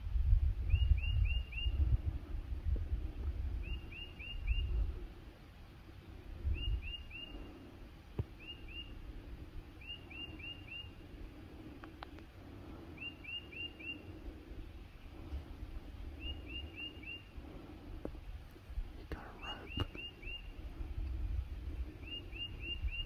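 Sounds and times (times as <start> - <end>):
songbird whistling: 0.7 - 1.8, 3.6 - 4.8, 6.5 - 7.5, 8.4 - 9.0, 9.8 - 11.0, 13.0 - 14.1, 16.2 - 17.3, 19.4 - 20.6, 22.0 - 23.0.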